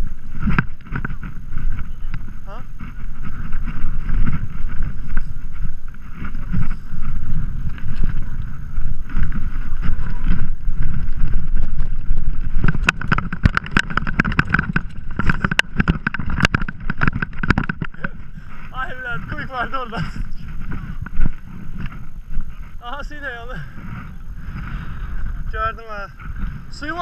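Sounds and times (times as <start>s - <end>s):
bike knocks and rattles: 0.0s - 23.0s
bike rolling rumble: 0.0s - 27.0s
wind buffeting microphone: 0.0s - 27.0s.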